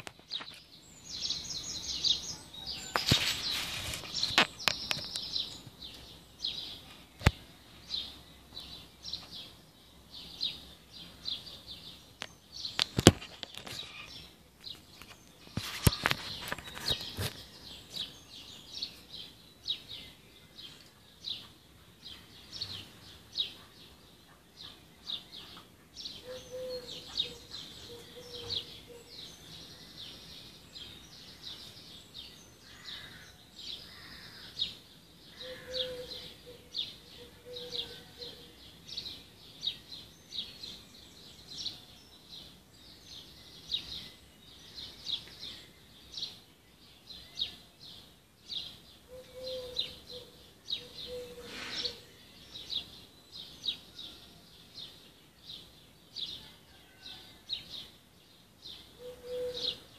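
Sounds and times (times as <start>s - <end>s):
small birds chirping and singing: 0.0s - 59.9s
lower bird call: 25.1s - 29.3s, 35.3s - 38.6s, 49.1s - 52.8s, 58.9s - 59.9s.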